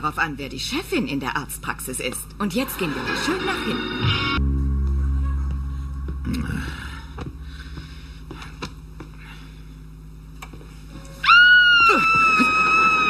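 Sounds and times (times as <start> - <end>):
woman screaming: 11.2 - 13.0.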